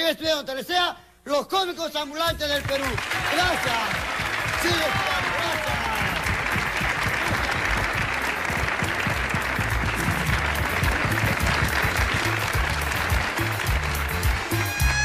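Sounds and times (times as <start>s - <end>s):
audience applauding: 2.4s - 15.0s
music with low bass line: 5.8s - 15.0s.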